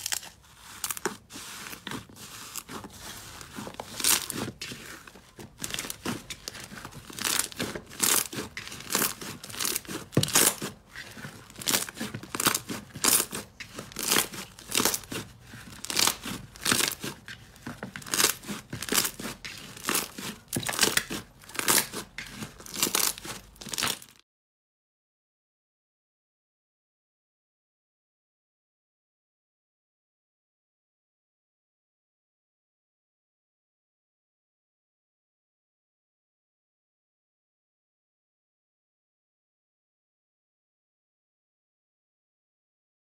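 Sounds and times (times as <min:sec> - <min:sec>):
slime crackling and squishing: 0:00.0 - 0:24.2.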